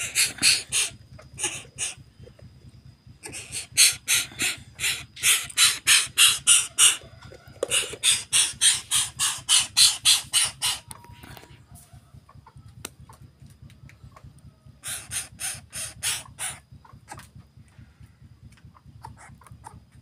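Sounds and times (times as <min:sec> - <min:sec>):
bird calling harsh notes: 0:00.0 - 0:02.2, 0:03.1 - 0:11.5, 0:14.8 - 0:17.2.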